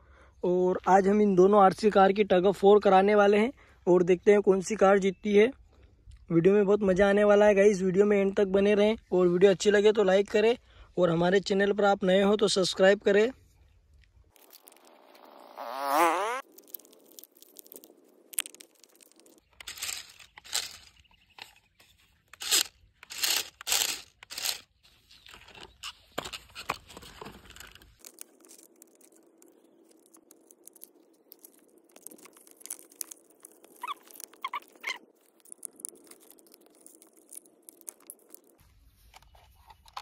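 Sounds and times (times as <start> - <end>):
plastic toy cars handled: 16.6 - 21.6, 22.2 - 40.0.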